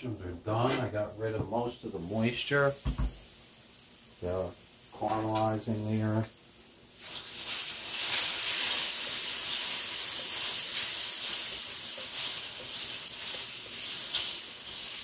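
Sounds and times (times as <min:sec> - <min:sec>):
mushrooms sizzling in a frying pan: 0:00.0 - 0:15.0.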